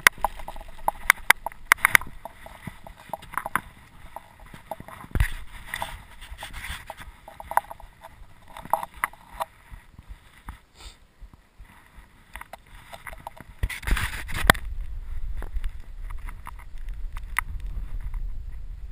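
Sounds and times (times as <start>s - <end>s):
bike chain and frame rattling: 0.0s - 9.5s
tyres clicking on stones: 0.0s - 9.6s, 12.3s - 14.7s
steady low rumble: 14.5s - 18.9s.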